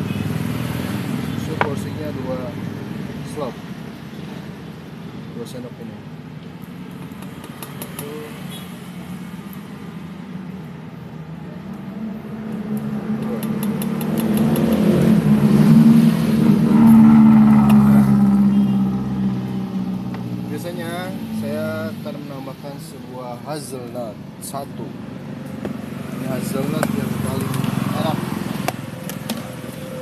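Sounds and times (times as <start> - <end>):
vehicle engine passing by: 11.2 - 22.6, 25.2 - 30.0.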